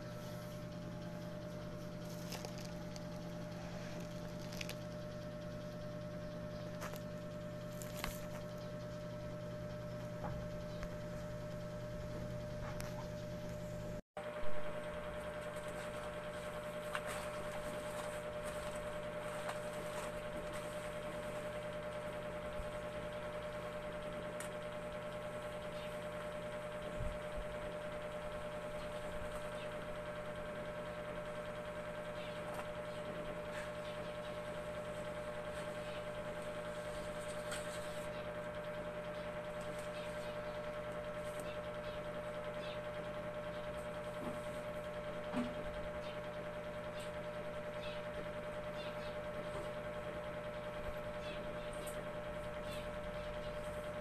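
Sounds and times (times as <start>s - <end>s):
steady electrical hum: 0.0s - 54.0s
faint packaging clicks: 4.0s - 4.8s.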